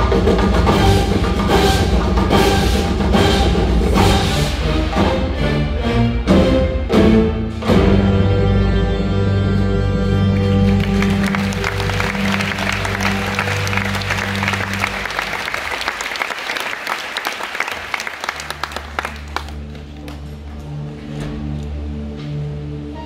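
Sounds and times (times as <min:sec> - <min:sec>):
audience applauding: 0:10.2 - 0:20.4.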